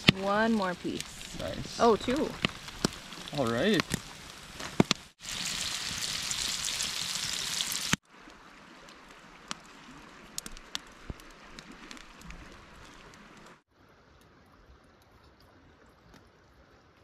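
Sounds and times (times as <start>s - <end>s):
fish frying in oil: 0.0s - 8.0s.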